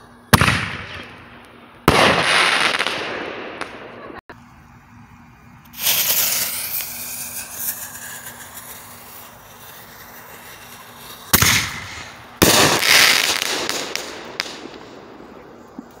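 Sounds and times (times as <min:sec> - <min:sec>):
crackling firework bursts: 0:00.0 - 0:16.0
sharp firework bang: 0:00.3 - 0:01.1, 0:01.9 - 0:03.4, 0:11.3 - 0:14.6.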